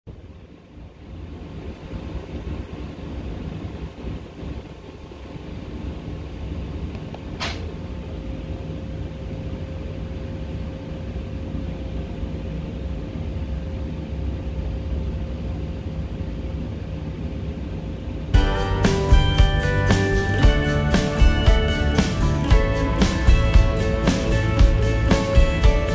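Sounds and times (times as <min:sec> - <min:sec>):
machine hum and rumble: 0:00.1 - 0:25.9
sharp click: 0:07.4 - 0:07.7
humming tone: 0:18.4 - 0:25.9.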